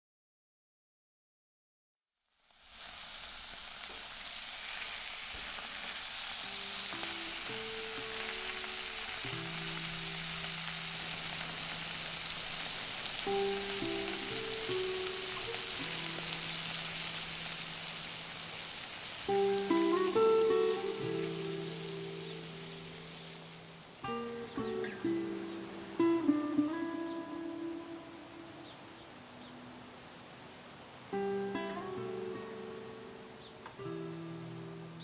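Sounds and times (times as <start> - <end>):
meat sizzling in a frying pan: 2.2 - 27.8
quiet music with low notes: 6.4 - 35.0.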